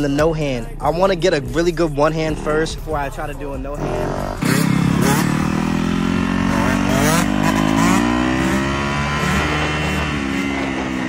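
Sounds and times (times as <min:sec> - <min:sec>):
dirt bike engine revving: 0:03.7 - 0:11.0.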